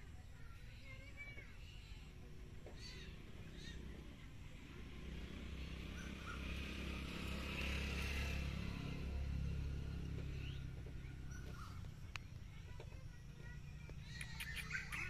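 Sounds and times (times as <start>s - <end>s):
vehicle engine rumble: 0.0s - 15.0s
faint bird chirps: 0.3s - 4.0s, 10.2s - 12.0s, 13.2s - 15.0s.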